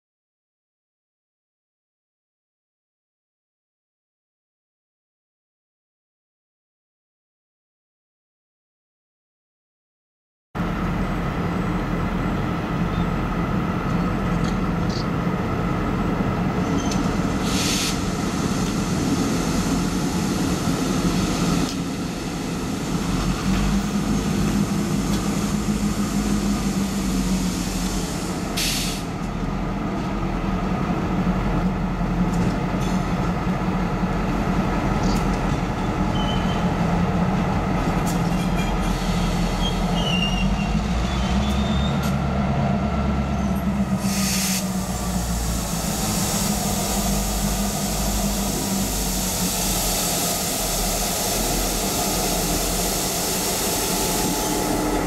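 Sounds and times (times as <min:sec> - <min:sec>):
diesel locomotive engines running: 0:10.6 - 0:55.0
air hiss bursts: 0:17.4 - 0:18.2, 0:28.6 - 0:29.1, 0:44.0 - 0:55.0.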